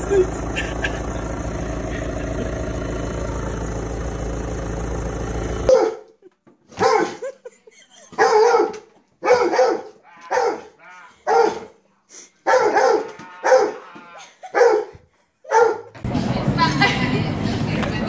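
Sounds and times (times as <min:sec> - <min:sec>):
dog barking: 0:05.7 - 0:06.1, 0:06.8 - 0:07.2, 0:08.2 - 0:11.7, 0:12.4 - 0:13.8, 0:14.5 - 0:15.9.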